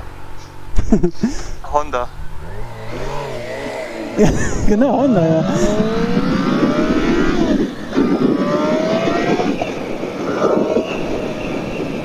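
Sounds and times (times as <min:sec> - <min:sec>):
wind rushing over microphone: 0:01.5 - 0:12.0
motorcycle engine accelerating: 0:02.1 - 0:11.4.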